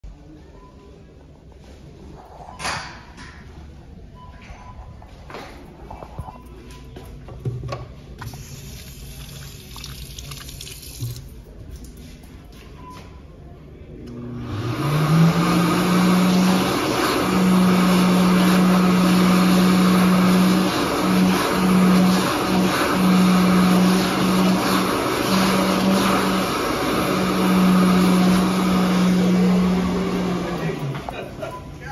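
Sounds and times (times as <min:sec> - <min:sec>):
hand dryer running: 0:14.2 - 0:31.5.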